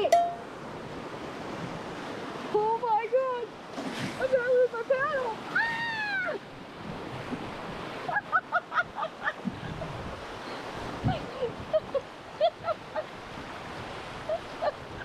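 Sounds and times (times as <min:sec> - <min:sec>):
river rapid rushing: 0:00.0 - 0:15.0
wind on microphone: 0:04.0 - 0:15.0
woman laughing: 0:08.0 - 0:10.0, 0:11.0 - 0:13.2, 0:14.2 - 0:15.0.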